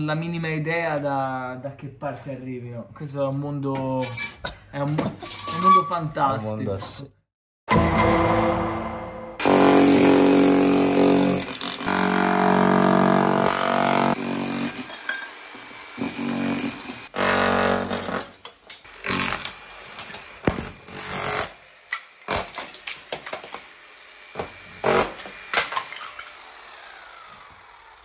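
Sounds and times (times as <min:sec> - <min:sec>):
power tool running: 0:09.4 - 0:18.2, 0:23.4 - 0:28.0.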